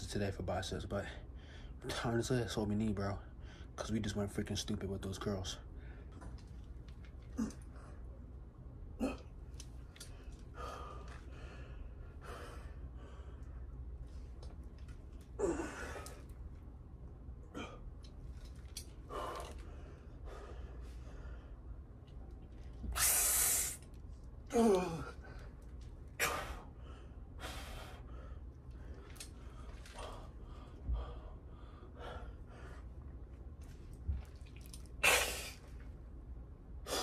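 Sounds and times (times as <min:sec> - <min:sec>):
man breathing hard: 0:10.0 - 0:13.8, 0:19.0 - 0:21.8, 0:24.5 - 0:33.0
man grunting with strain: 0:24.5 - 0:25.2.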